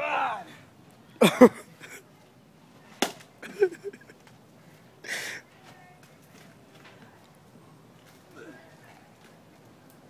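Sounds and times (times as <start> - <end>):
man yelling: 0.0 - 0.6.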